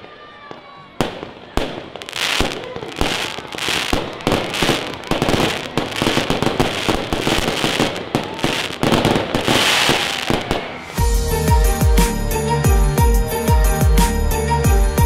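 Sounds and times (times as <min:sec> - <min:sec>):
fireworks crackle: 0:00.0 - 0:11.0
fireworks cracks and pops: 0:00.0 - 0:11.0.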